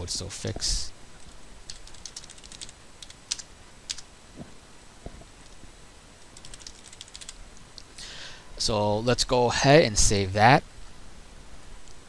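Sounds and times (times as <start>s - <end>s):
keyboard typing: 1.2s - 4.1s, 6.4s - 7.4s.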